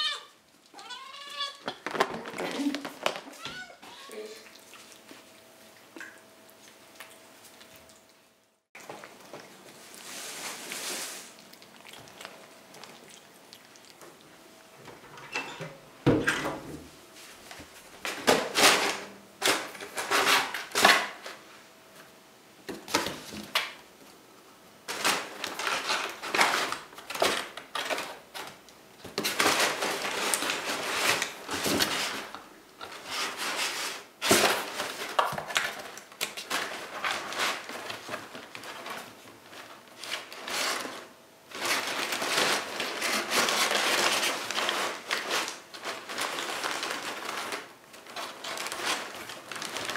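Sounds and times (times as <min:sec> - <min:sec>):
paper crinkling: 0:00.7 - 0:05.4, 0:08.8 - 0:14.3, 0:24.9 - 0:49.9.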